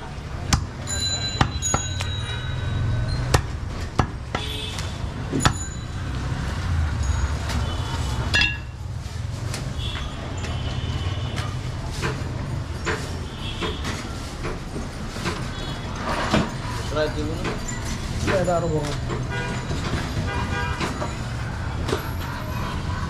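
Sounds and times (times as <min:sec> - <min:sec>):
cleaver chopping meat on wood: 0:00.4 - 0:00.8, 0:03.2 - 0:04.5.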